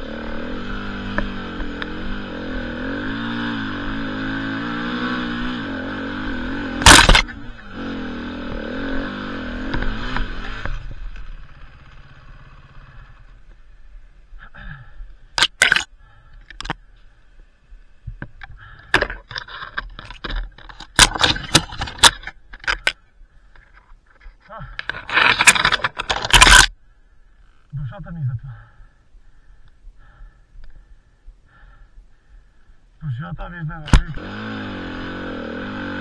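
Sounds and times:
motorcycle engine revving: 0.0s - 13.8s, 33.8s - 36.0s
sharp clicks and knocks: 18.1s - 26.7s.

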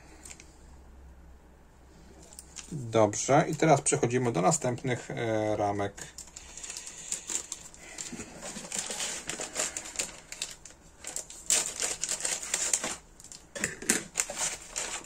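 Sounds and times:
plastic packaging crinkling: 2.2s - 5.1s, 6.0s - 15.0s.

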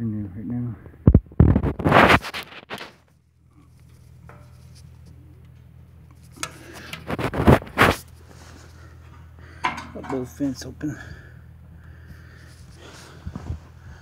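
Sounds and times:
low steady hum: 0.0s - 14.0s
steel vent scraping and clanking: 1.6s - 11.4s.

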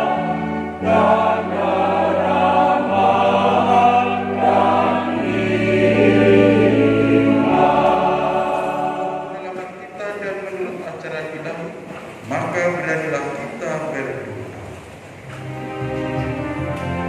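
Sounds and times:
choir singing a hymn: 0.0s - 9.8s
keyboard chords: 0.0s - 10.0s, 15.2s - 17.0s.

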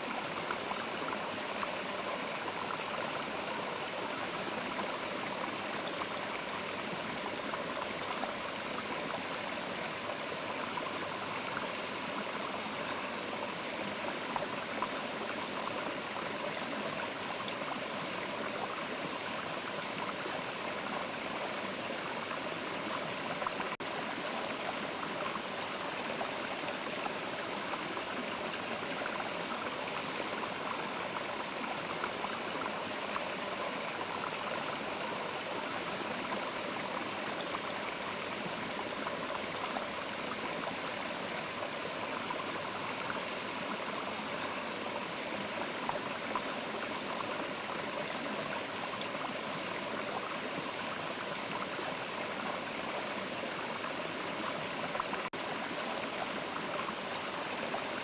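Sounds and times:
river water rushing: 45.0s - 58.0s.

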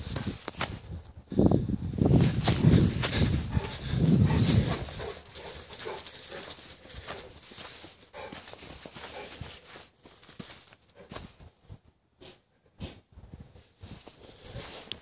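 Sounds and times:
dog snuffling: 2.2s - 9.9s
dog footfalls on dry leaves: 2.2s - 10.7s.

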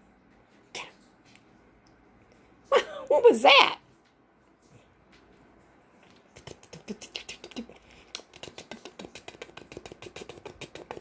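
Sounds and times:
kitten claws scratching fabric: 6.2s - 11.0s.

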